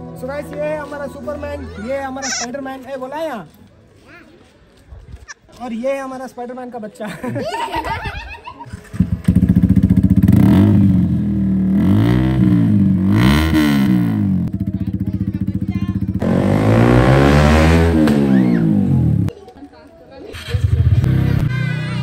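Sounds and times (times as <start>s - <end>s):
motorcycle engine revving: 8.7s - 19.3s, 20.3s - 21.5s.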